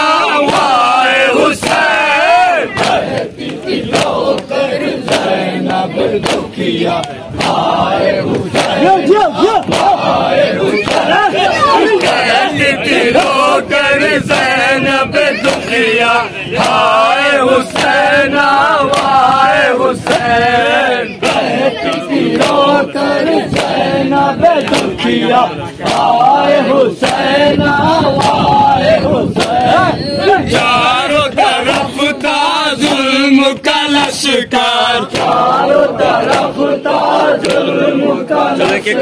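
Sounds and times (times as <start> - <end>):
men chanting in unison: 0.0 - 39.0
hands slapping chests: 6.2 - 7.6, 24.6 - 25.0, 25.8 - 26.2, 35.1 - 35.5, 36.2 - 36.6, 37.4 - 37.7.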